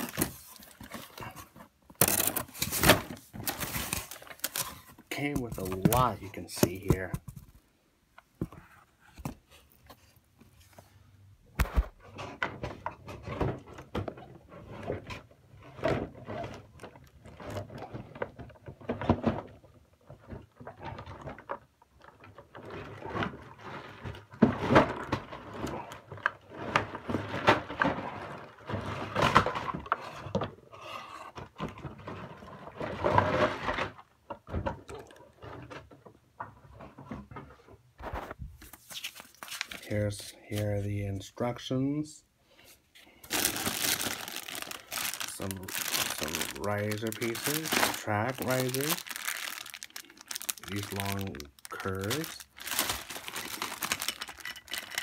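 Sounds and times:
plastic toy pieces knocking: 0:47.3 - 0:55.0.

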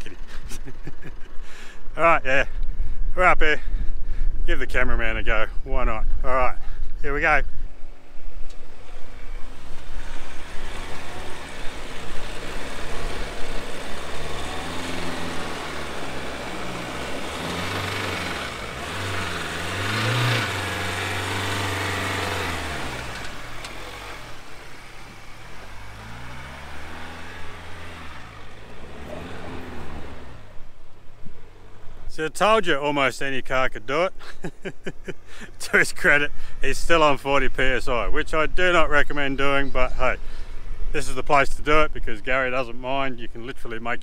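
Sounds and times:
car engine revving: 0:08.5 - 0:32.1
tyres churning sand: 0:09.4 - 0:30.6.

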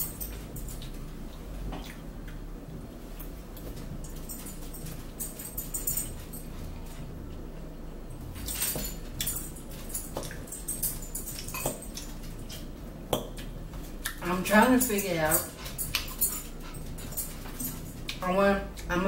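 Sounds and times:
chewing: 0:00.1 - 0:02.5, 0:08.2 - 0:14.2, 0:15.3 - 0:18.9
lip smacks: 0:00.8 - 0:02.4, 0:11.4 - 0:14.2
fork clicking against bowl: 0:15.9 - 0:16.3.

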